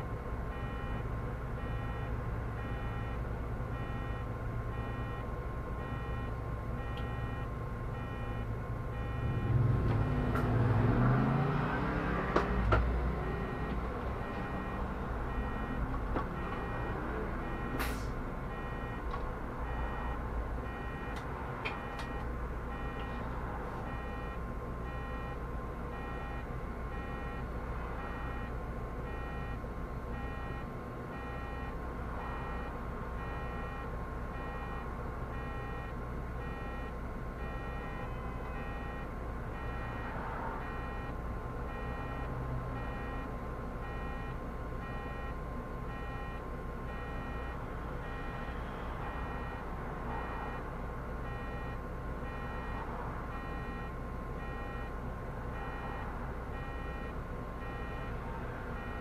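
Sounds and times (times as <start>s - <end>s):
bus engine rumble: 0.0s - 59.0s.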